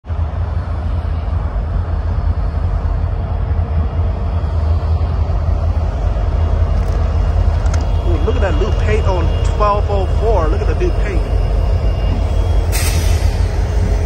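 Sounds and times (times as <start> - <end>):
diesel locomotive engines rumbling: 0.0 - 14.0.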